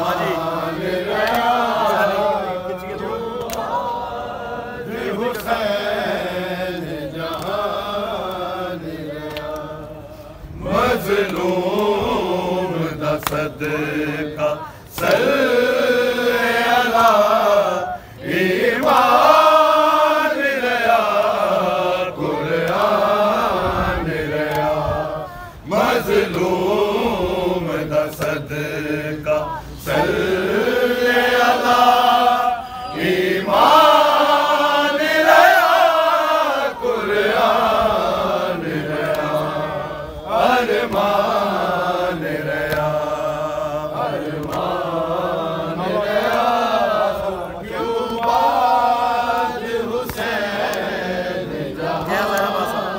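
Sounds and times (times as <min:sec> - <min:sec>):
men chanting a lament: 0:00.0 - 0:52.9.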